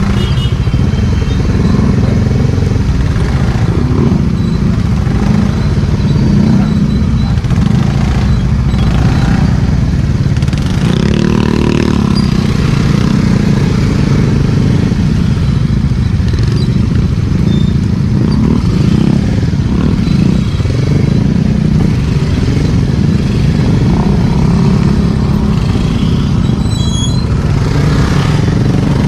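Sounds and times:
other scooters running alongside: 0:00.0 - 0:29.0.

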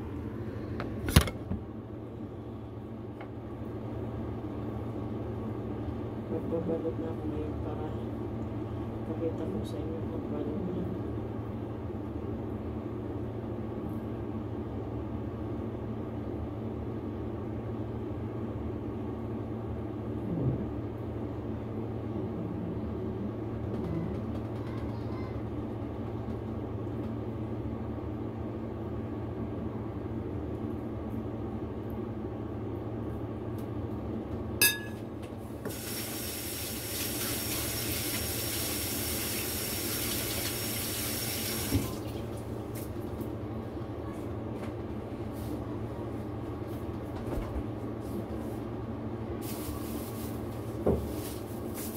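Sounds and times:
steady low hum: 0:00.0 - 0:35.7, 0:42.0 - 0:51.9
tap water running: 0:35.6 - 0:42.9.

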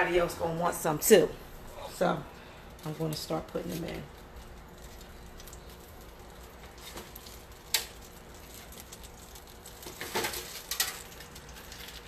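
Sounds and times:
bread laid in skillet clicks: 0:07.0 - 0:09.0.

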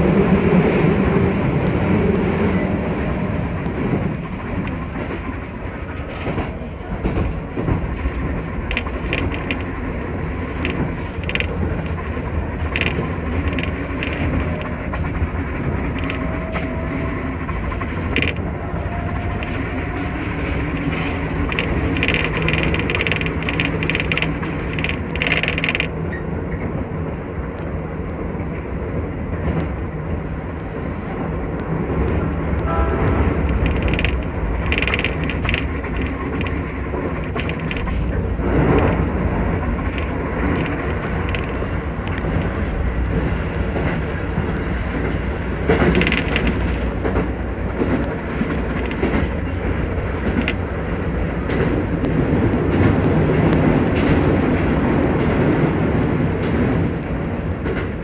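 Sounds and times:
train wheels rumbling on rail: 0:00.0 - 0:58.0
sharp rattling clicks: 0:07.1 - 0:16.7, 0:17.4 - 0:26.1, 0:31.1 - 0:58.0.

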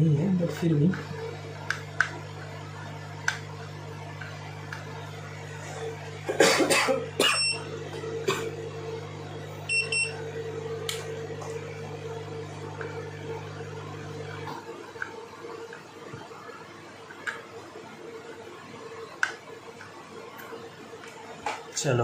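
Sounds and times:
low hum: 0:00.0 - 0:16.5
person coughing: 0:05.6 - 0:08.6
short electronic beeps: 0:09.7 - 0:10.1.

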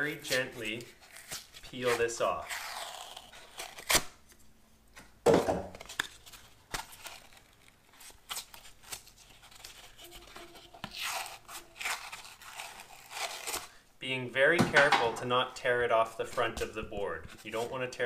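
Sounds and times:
paper tearing: 0:00.1 - 0:04.2, 0:05.8 - 0:13.8.

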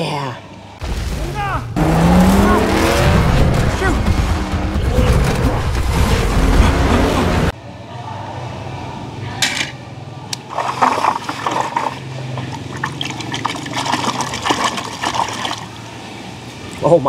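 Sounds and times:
water dripping: 0:10.3 - 0:15.8
hand splashing through water: 0:10.4 - 0:15.7.

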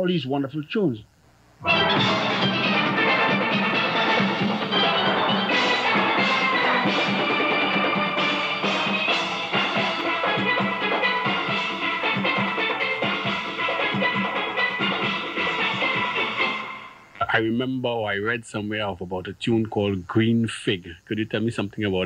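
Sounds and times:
steelpans playing melody: 0:01.6 - 0:17.0
drums and percussion: 0:01.6 - 0:17.3.

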